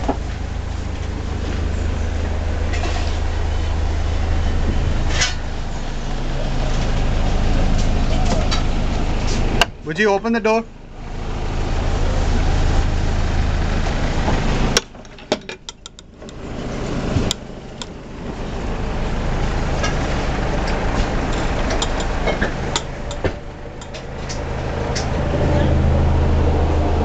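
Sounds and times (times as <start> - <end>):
boat engine humming: 0.0 - 27.0
knocks and clicks: 14.8 - 16.4.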